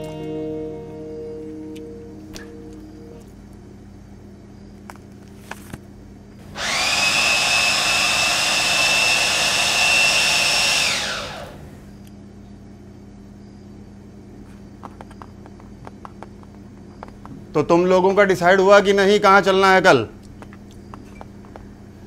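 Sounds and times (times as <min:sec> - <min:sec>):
blender whirring: 0:06.4 - 0:11.9.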